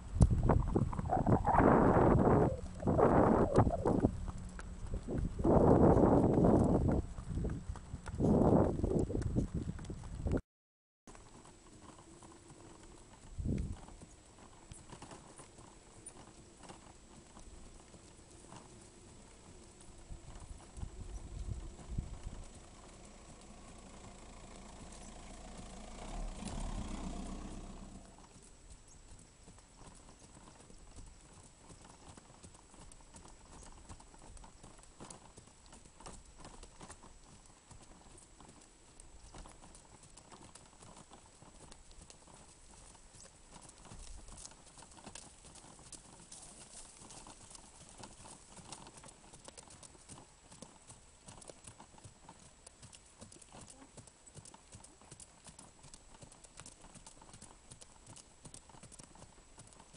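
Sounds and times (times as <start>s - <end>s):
horse hooves on dirt: 0.0s - 10.4s, 11.1s - 59.9s
low-pitched noise: 0.3s - 6.9s.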